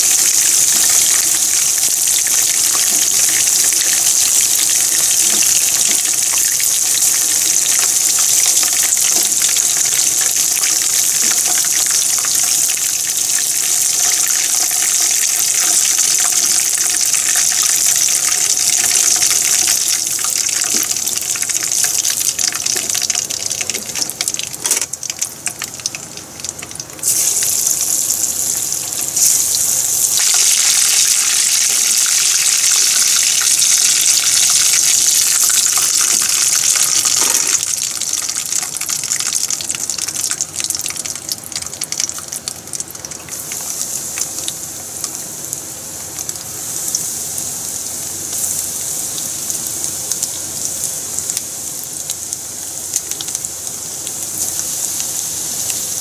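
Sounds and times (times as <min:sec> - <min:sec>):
chicken deep-frying in oil: 0:00.0 - 0:56.0.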